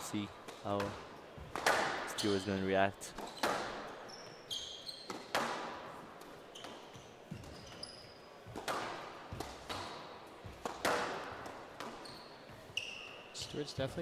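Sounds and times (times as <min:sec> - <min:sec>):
court shoes squeaking: 0:00.0 - 0:14.0
squash ball smacking: 0:00.4 - 0:02.2, 0:03.2 - 0:04.0, 0:05.0 - 0:07.6, 0:08.5 - 0:12.0.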